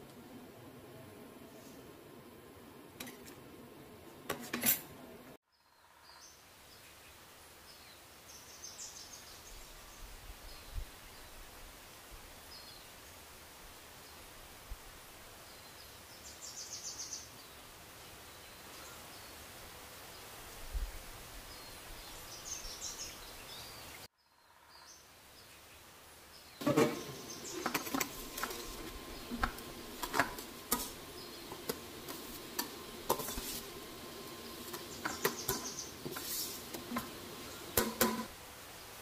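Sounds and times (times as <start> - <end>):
utensils clinking on steel pot: 4.3 - 5.0, 34.6 - 38.3
steady hiss: 25.1 - 39.0
faint chirps: 26.6 - 38.0.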